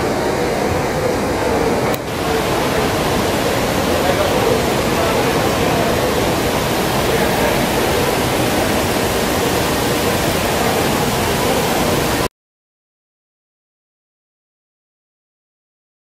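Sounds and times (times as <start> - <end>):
fountain water splashing: 0.0 - 12.3.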